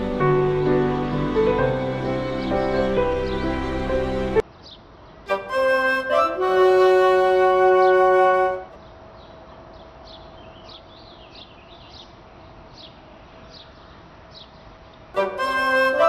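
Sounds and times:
held music chord: 0.0s - 4.4s, 5.3s - 8.7s, 15.2s - 16.0s
birds chirping: 0.0s - 5.9s, 6.6s - 16.0s.

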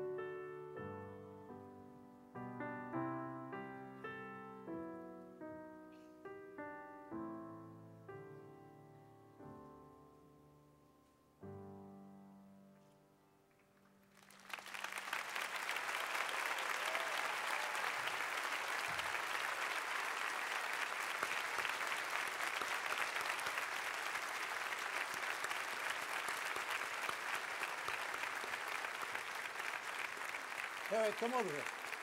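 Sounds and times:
audience applause: 14.1s - 32.0s.

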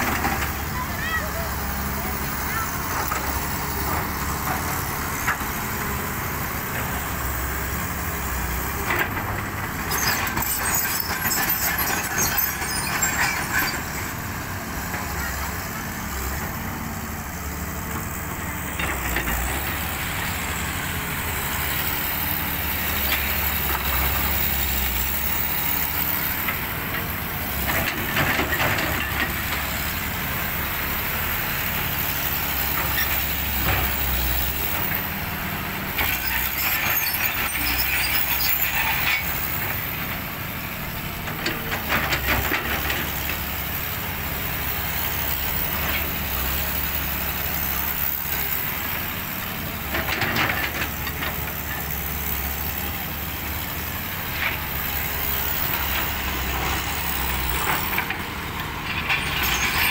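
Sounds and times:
diesel engine droning: 0.0s - 59.9s
rattling and scraping on gravel: 54.4s - 59.9s.

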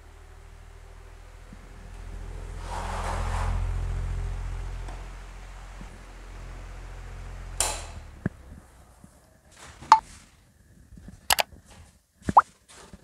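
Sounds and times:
fan motor hum and air noise: 0.0s - 9.9s.

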